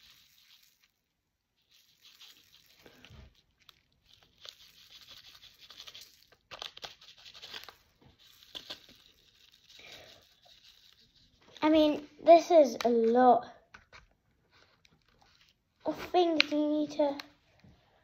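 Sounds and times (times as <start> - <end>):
powder pouring into funnel: 0.0 - 11.6
plastic bag crinkling: 1.6 - 11.8.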